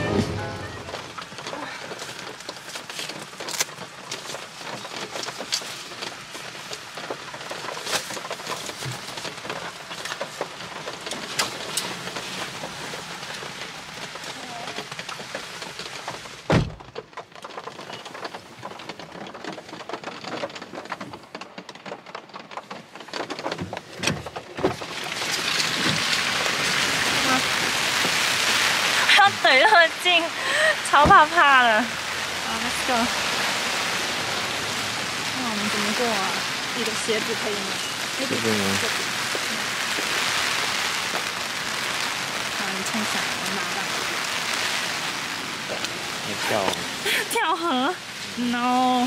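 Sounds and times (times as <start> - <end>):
heavy thump: 0.0 - 1.1
rain pattering on a car: 0.0 - 49.0.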